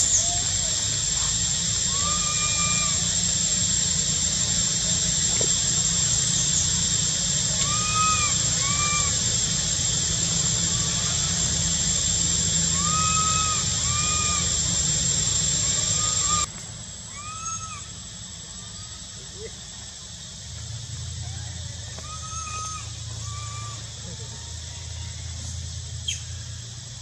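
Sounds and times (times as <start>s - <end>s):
monkey whistle-like coo calls: 0.0s - 16.5s, 17.1s - 18.0s, 21.8s - 24.4s
steady high hiss: 0.0s - 27.0s.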